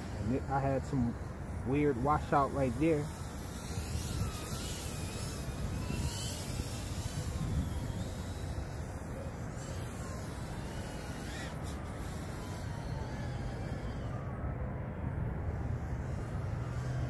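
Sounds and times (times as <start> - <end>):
distant quadcopter motors whining: 0.0 - 17.0.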